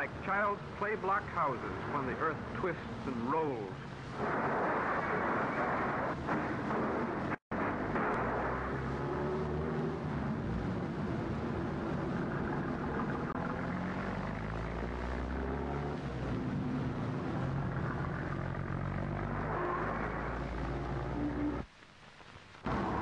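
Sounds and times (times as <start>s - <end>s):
film sound track hiss: 0.0s - 23.0s.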